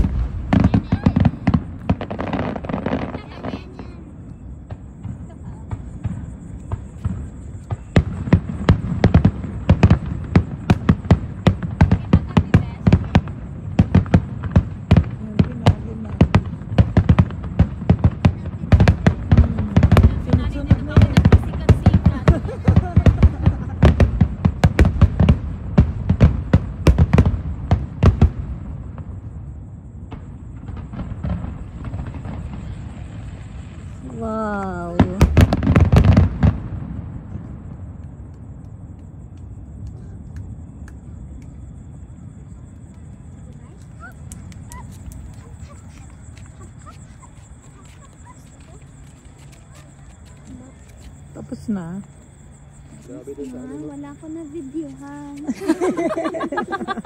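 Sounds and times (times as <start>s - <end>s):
firework shells bursting: 0.0s - 3.8s
firework bangs: 0.0s - 52.6s
faint firework crackling: 0.0s - 57.0s.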